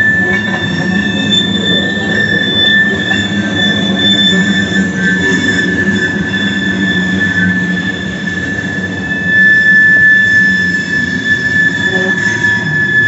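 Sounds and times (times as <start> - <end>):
freight cars rumbling on steel wheels: 0.0 - 12.9
high-pitched wheel squeal: 0.0 - 13.0.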